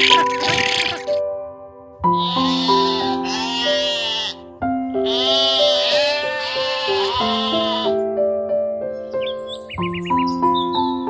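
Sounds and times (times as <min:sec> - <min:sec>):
background music with sustained notes: 0:00.0 - 0:11.0
sheep bleating: 0:02.1 - 0:08.0.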